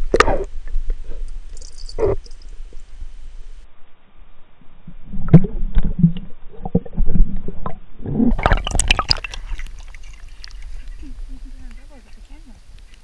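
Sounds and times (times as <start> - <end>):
water sloshing and gurgling: 4.7 - 11.9
water splashing: 8.3 - 13.0.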